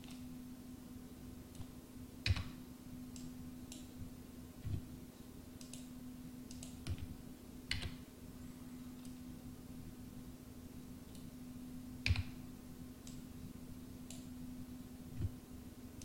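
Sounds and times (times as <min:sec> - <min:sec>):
faint steady hum: 0:00.0 - 0:16.0
computer mouse clicking: 0:01.5 - 0:03.9, 0:05.6 - 0:07.1, 0:07.7 - 0:08.0, 0:12.0 - 0:12.4, 0:13.0 - 0:13.2, 0:14.0 - 0:14.3.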